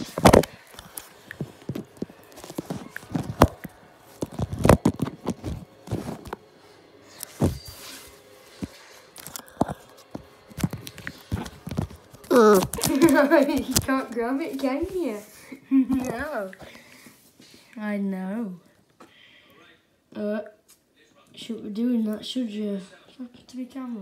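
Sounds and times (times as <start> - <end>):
scratching: 0.0 - 6.5, 7.1 - 15.3.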